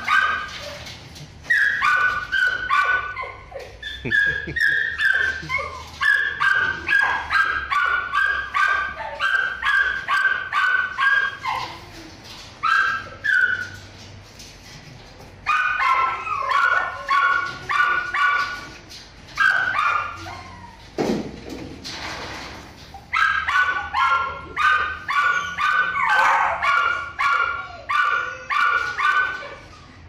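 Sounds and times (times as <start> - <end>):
dog barking high-pitched: 0.0 - 0.8, 1.6 - 11.8, 15.5 - 18.7, 19.4 - 20.6, 23.1 - 29.6.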